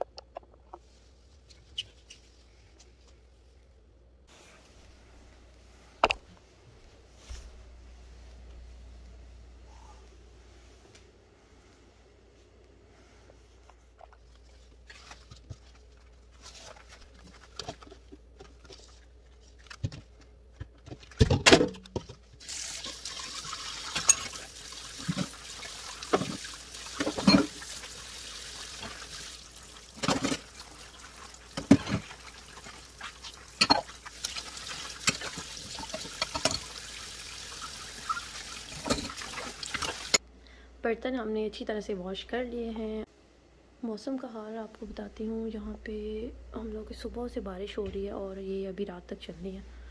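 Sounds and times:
faucet water rushing into sink: 22.4s - 40.2s
pot and dishes clattering: 27.0s - 27.6s, 33.6s - 34.4s, 35.0s - 36.8s, 38.7s - 40.2s.

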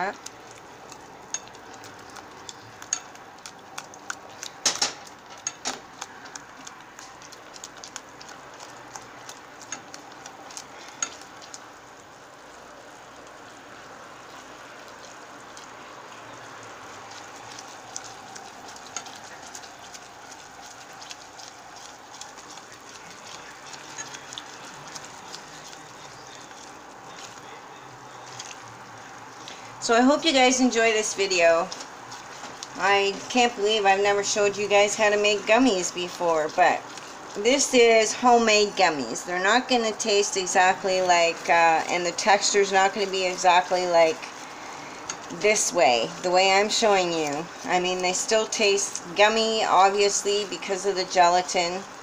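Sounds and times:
simmering mixture hissing: 0.0s - 52.0s.

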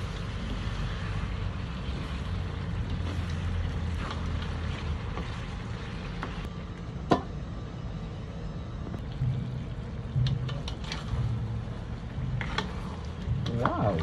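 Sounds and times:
spatula scraping wok: 0.0s - 6.5s, 10.6s - 14.0s
steady low rumble: 0.0s - 14.0s.

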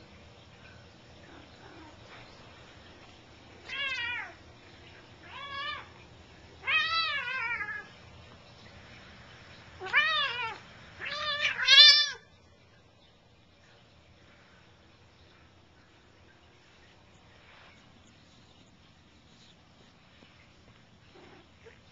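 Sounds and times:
cat yowling: 9.8s - 12.2s.

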